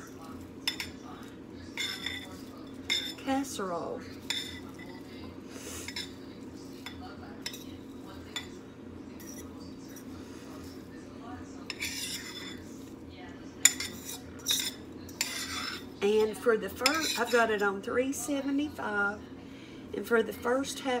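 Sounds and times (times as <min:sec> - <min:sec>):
spoon scraping a skillet: 0:00.0 - 0:08.5, 0:09.1 - 0:11.0, 0:11.6 - 0:17.8.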